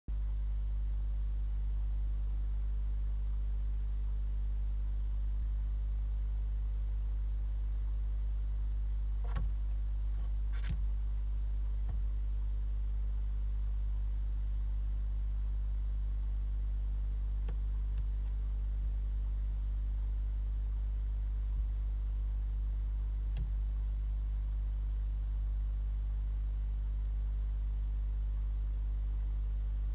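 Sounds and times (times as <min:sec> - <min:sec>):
low electrical hum: 0:00.1 - 0:29.9
faint knocks and scrapes: 0:09.2 - 0:10.9.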